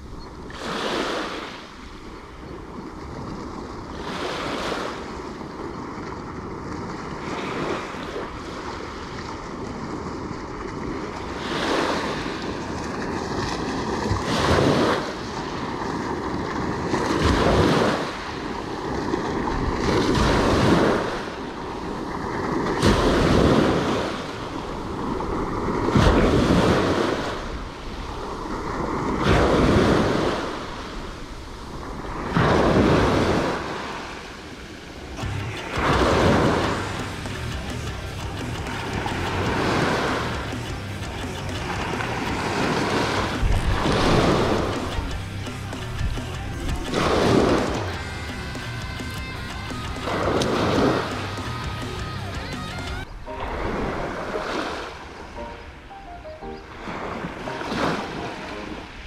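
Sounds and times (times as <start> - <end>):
small waves breaking on beach: 0.0 - 37.0, 41.4 - 45.0, 53.0 - 59.0
wind on microphone: 41.6 - 45.3.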